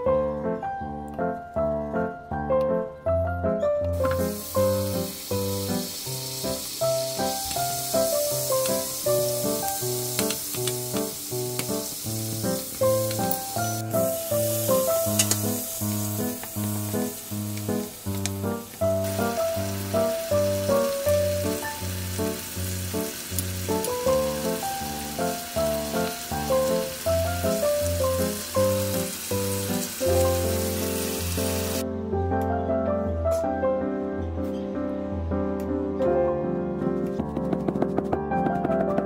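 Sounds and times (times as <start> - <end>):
scallops sizzling in a frying pan: 4.0 - 31.8.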